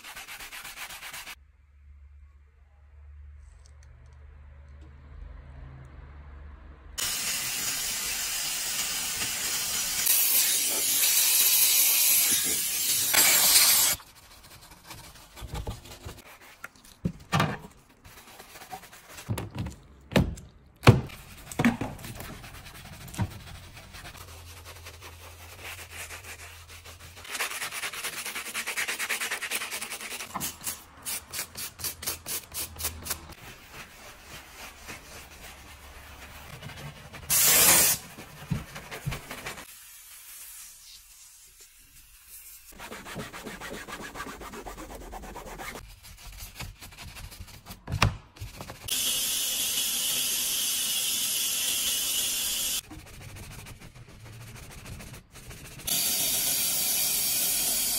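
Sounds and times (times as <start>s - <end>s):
steam cleaner jet hissing: 7.0s - 14.0s, 55.9s - 57.9s.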